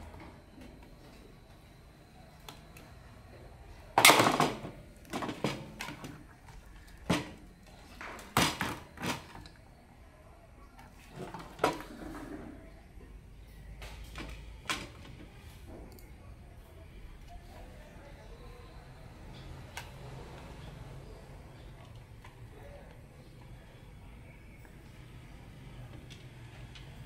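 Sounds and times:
plastic parts clattering on wood: 4.0s - 6.2s.

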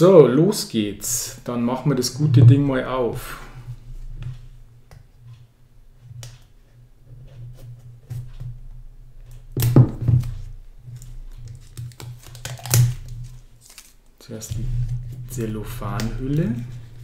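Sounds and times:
plastic crinkling: 10.9s - 17.0s
knife slitting plastic wrap: 11.6s - 14.0s.

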